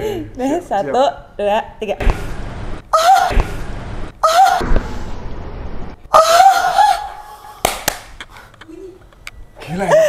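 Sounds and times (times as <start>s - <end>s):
high-pitched shrieks and laughter: 6.1s - 7.6s
sharp smack: 7.6s - 8.2s.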